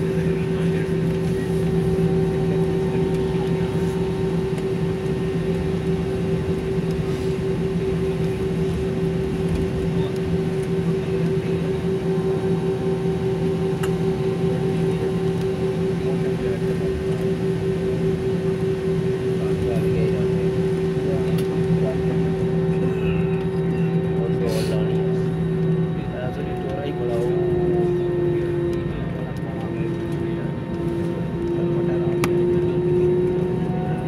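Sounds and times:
jet engine cabin drone: 0:00.0 - 0:34.0.

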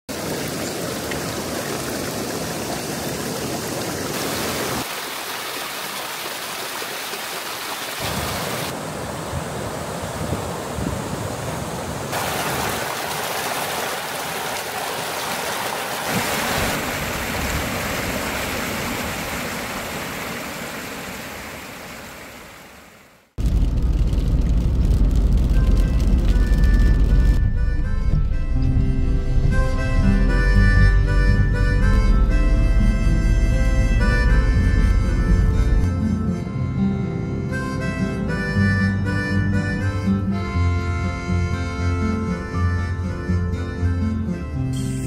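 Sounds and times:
stream water rushing: 0:00.1 - 0:23.3.

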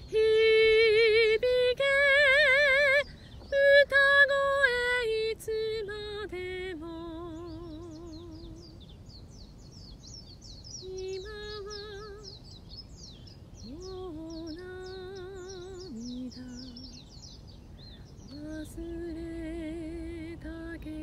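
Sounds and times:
woman singing wordless notes: 0:00.0 - 0:08.8, 0:10.8 - 0:12.4, 0:13.6 - 0:17.0, 0:18.2 - 0:21.0.

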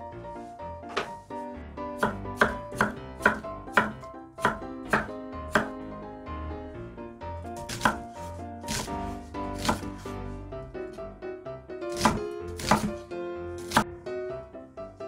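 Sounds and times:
soft background music: 0:00.0 - 0:15.0
knife chopping on wooden board: 0:02.0 - 0:05.8, 0:07.6 - 0:10.0, 0:11.9 - 0:13.0, 0:13.6 - 0:13.8.

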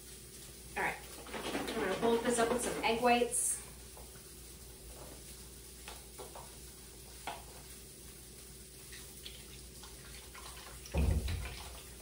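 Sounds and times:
liquid pouring into metal bowl: 0:08.9 - 0:12.0.

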